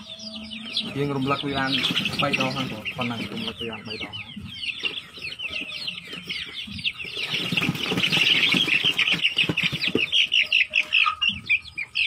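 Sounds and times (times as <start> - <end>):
chicks peeping: 0.0 - 12.0
scuffling and knocks: 1.6 - 4.1.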